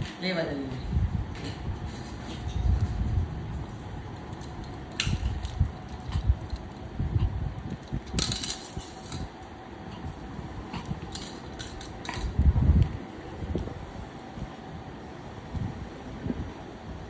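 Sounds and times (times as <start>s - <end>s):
plastic toys clattering on floor: 7.8s - 9.3s, 11.1s - 12.3s.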